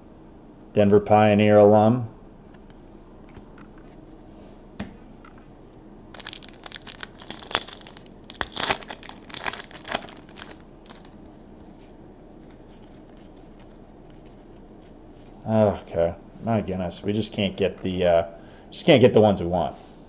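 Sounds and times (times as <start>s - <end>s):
foil pack tearing and crinkling: 6.1s - 11.2s.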